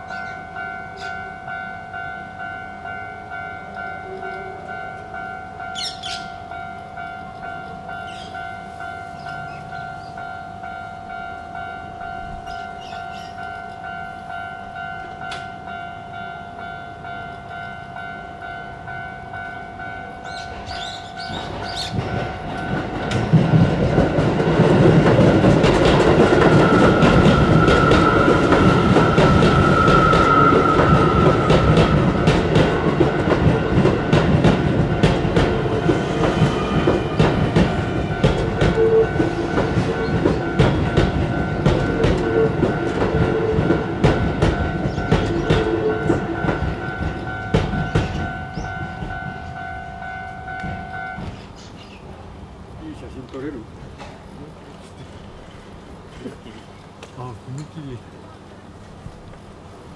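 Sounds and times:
level crossing warning bell: 0:00.0 - 0:51.5
electric train passing: 0:00.0 - 0:59.9
wheels clicking over rail joints: 0:20.3 - 0:51.9.

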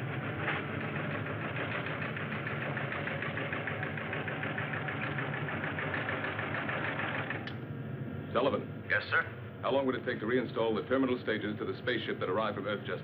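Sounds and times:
rapid mechanical clatter: 0:00.0 - 0:07.5.

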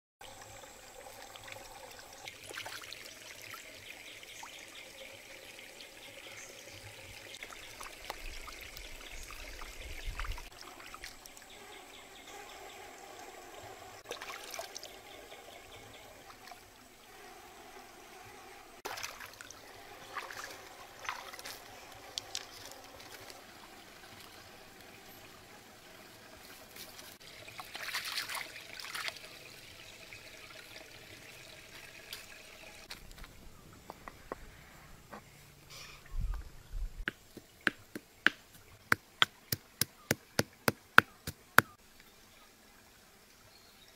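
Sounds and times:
stream trickling: 0:00.2 - 0:43.9
light knocks and small splashes: 0:18.8 - 0:23.4, 0:26.5 - 0:29.3.

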